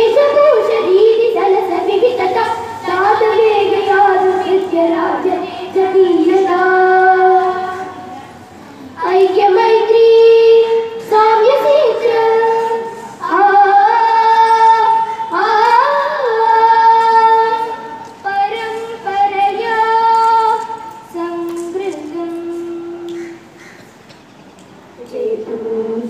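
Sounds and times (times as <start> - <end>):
young woman singing: 0.0 - 8.3, 9.0 - 23.4, 25.0 - 26.0.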